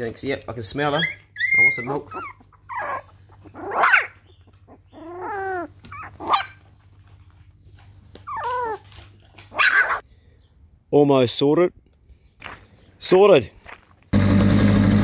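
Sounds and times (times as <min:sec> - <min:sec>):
puppies whining and yelping: 0:00.8 - 0:06.8, 0:08.1 - 0:10.0.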